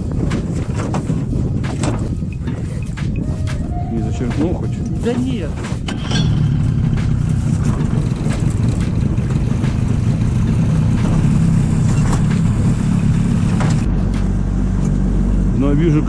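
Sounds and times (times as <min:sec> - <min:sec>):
outboard motor running: 0:04.8 - 0:15.4.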